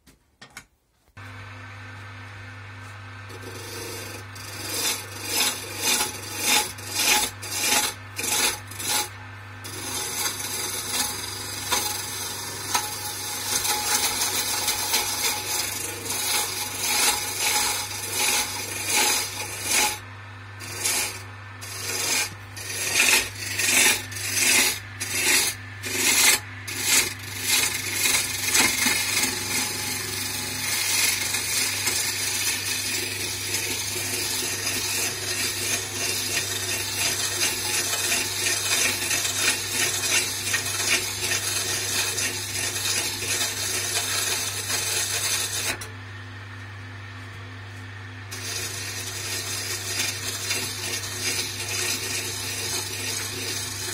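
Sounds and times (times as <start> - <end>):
steady low hum: 1.1 - 39.1
gouge scraping wood on lathe: 3.3 - 45.9, 48.2 - 53.9.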